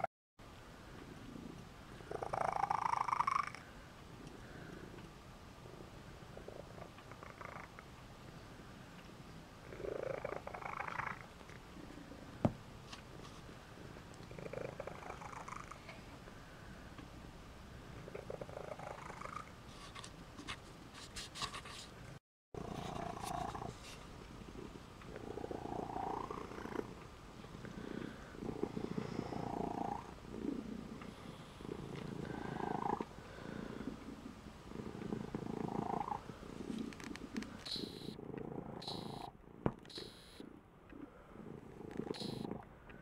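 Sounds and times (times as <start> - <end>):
cat purring: 1.2 - 5.0, 5.6 - 7.9, 9.6 - 12.2, 13.8 - 16.1, 17.9 - 19.6, 22.6 - 42.7.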